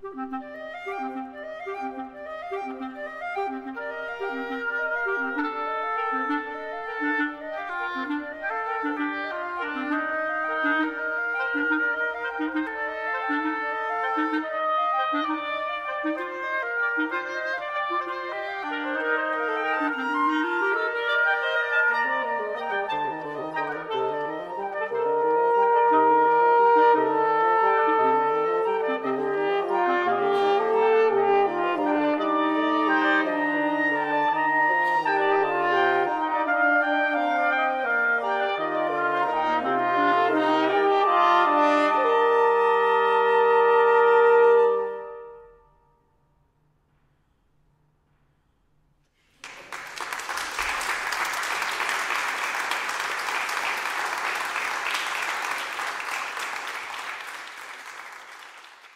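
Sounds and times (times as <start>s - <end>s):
wind quintet playing: 0.0s - 46.1s, 49.4s - 58.9s
audience applause: 49.2s - 58.9s.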